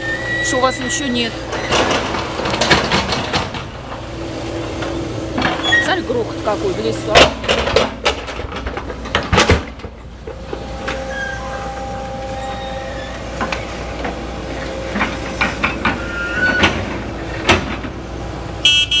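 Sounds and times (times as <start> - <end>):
excavator engine running: 0.0 - 19.0
hydraulic whine: 0.0 - 19.0
bucket clanks and thuds: 1.6 - 4.0, 7.1 - 11.0.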